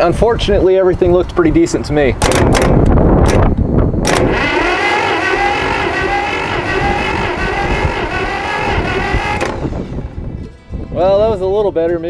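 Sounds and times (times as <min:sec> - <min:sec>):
starter motor cranking engine: 0:04.0 - 0:10.3.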